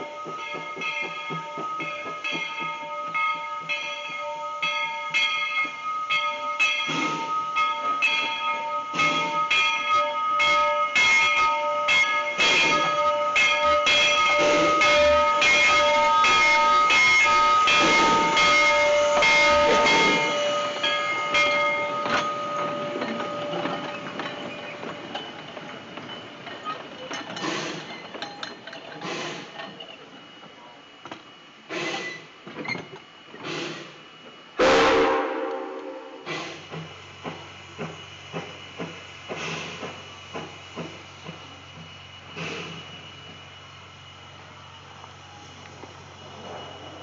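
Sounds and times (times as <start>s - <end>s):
locomotive bell ringing: 0.0s - 27.5s
freight cars rolling on rails: 0.0s - 47.0s
steam locomotive exhaust: 0.0s - 47.0s.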